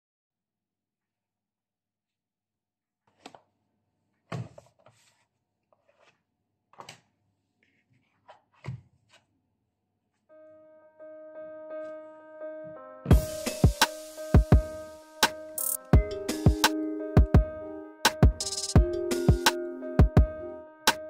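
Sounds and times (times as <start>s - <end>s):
cardboard rustling: 4.2s - 9.3s
music with held notes: 10.3s - 21.0s.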